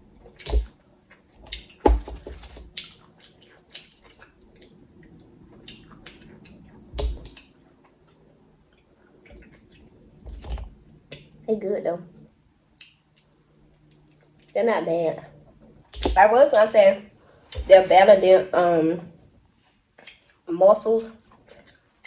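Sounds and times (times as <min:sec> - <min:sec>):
chewing with wet mouth clicks: 0:00.2 - 0:01.9, 0:02.6 - 0:10.2, 0:12.8 - 0:14.6.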